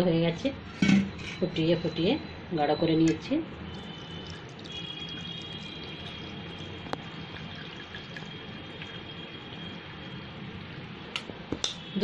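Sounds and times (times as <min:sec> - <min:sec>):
milk trickling through strainer: 0:03.7 - 0:09.6.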